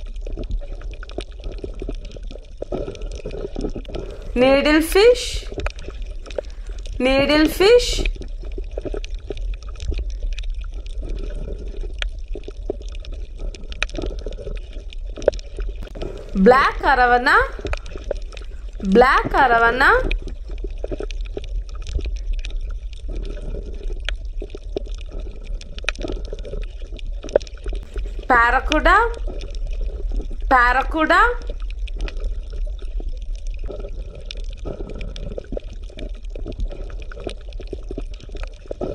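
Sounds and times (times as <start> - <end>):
small splashes and clicks: 0.0 - 4.4, 7.9 - 16.4, 20.0 - 28.3, 31.4 - 38.9
sea water lapping among blocks: 0.0 - 38.9.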